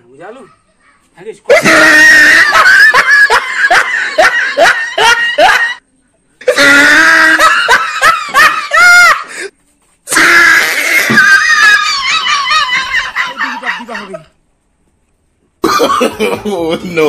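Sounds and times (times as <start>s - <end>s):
person crying out: 1.5s - 2.8s, 6.5s - 7.5s, 10.1s - 11.9s.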